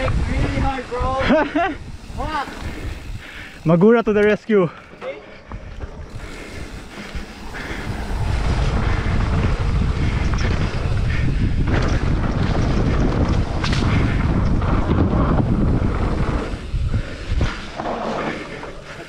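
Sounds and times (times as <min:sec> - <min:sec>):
wind buffeting microphone: 0:00.0 - 0:04.2, 0:05.4 - 0:19.0
bike rumbling on dirt trail: 0:00.0 - 0:19.0
bike knocking over bumps: 0:08.5 - 0:16.5.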